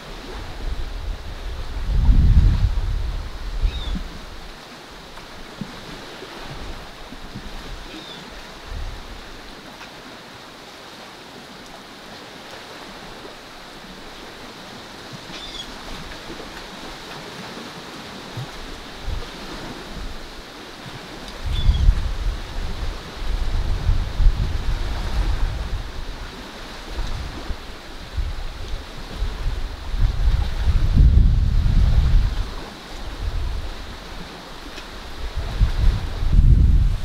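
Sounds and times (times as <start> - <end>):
wind buffets on microphone: 0.0 - 9.6, 18.3 - 37.0
surf: 0.0 - 37.0
wind: 0.0 - 37.0
distant bird chirps: 3.7 - 4.0, 15.3 - 15.7.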